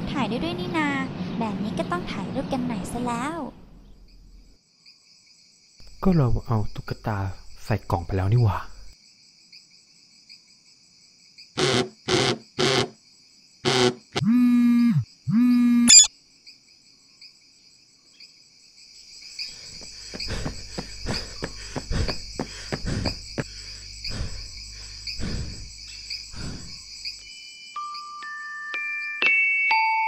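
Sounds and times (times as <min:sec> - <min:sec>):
crickets chirping: 0:03.7 - 0:28.3
phone buzz alert: 0:14.2 - 0:16.1
footsteps: 0:19.8 - 0:24.5
glockenspiel notes: 0:27.8 - 0:30.0.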